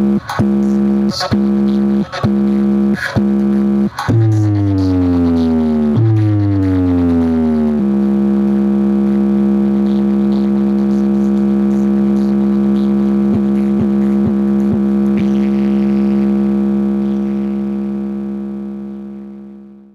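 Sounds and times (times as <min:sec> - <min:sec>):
synthesizer drone: 0:00.0 - 0:19.4
downward pitch drops: 0:04.1 - 0:08.0.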